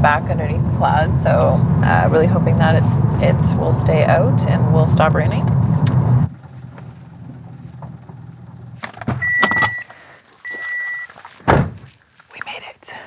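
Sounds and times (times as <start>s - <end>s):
car engine humming: 0.0s - 11.8s
car warning beeps: 9.2s - 11.2s
loud thump: 11.4s - 11.9s.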